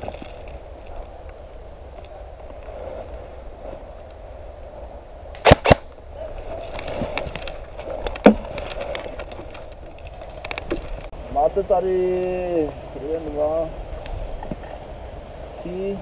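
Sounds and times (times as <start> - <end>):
airsoft rifle shots: 5.4 - 5.9.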